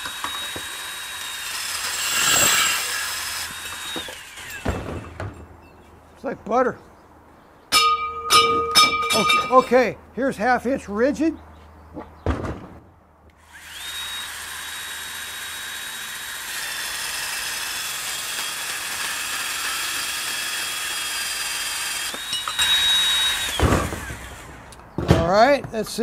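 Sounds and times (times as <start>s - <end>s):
saw cutting steel pipe: 0.0s - 5.2s, 13.4s - 24.8s
band saw motor whine: 0.0s - 5.4s, 13.4s - 24.8s.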